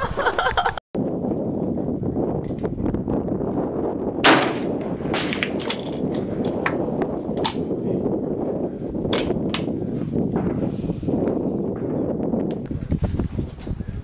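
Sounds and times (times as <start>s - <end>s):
rifle shot: 4.2s - 5.8s.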